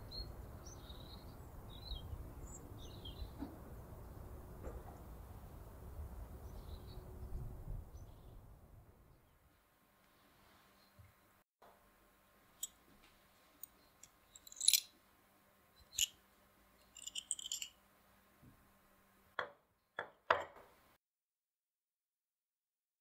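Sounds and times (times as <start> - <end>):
knife knocking on wooden table: 19.4 - 20.7.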